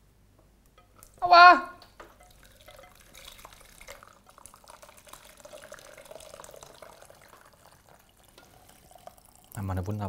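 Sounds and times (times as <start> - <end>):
liquid trickling into jug: 1.8 - 10.0
jug filling tone: 2.1 - 9.6.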